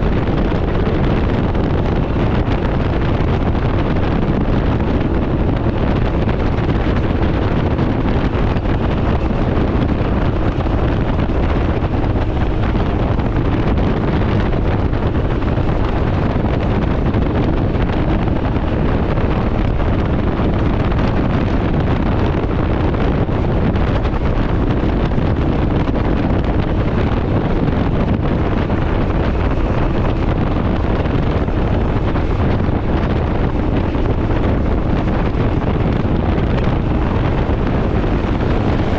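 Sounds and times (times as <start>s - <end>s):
vehicle and road drone: 0.0s - 38.9s
wind buffeting microphone: 0.0s - 38.9s.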